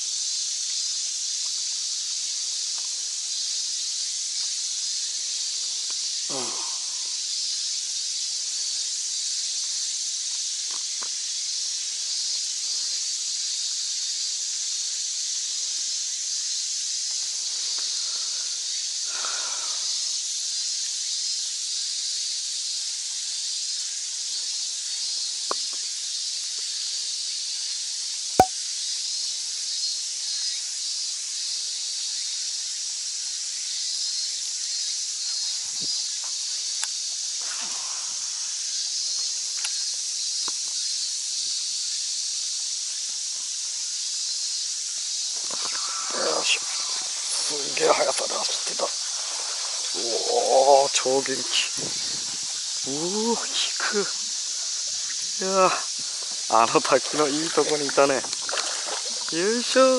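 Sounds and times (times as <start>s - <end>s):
cicada chorus buzzing: 0.0s - 59.9s.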